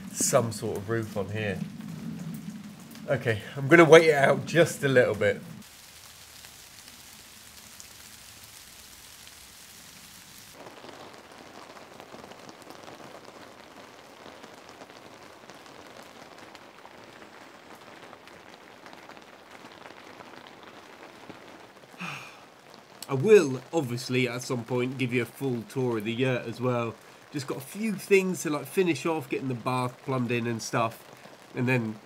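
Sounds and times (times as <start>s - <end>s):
rain on a roof: 0.0s - 32.0s
rain on foliage: 0.0s - 32.0s.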